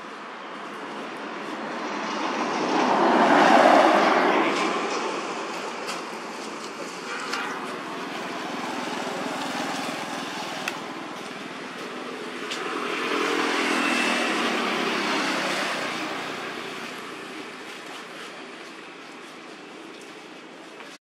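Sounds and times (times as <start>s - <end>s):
motor vehicle passing: 1.8s - 5.6s, 8.0s - 17.4s.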